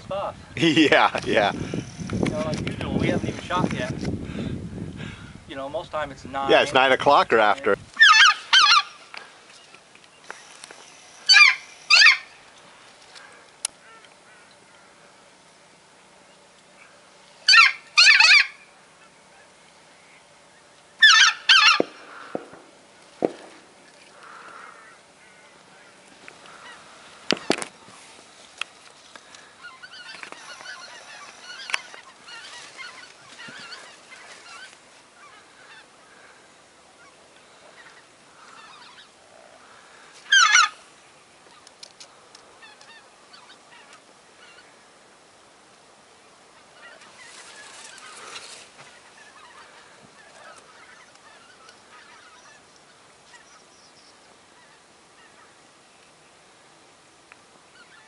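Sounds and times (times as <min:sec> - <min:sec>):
goose call honking: 0:06.5 - 0:09.1, 0:10.4 - 0:12.4, 0:17.4 - 0:19.5, 0:21.0 - 0:22.4, 0:29.3 - 0:40.8, 0:46.6 - 0:52.6.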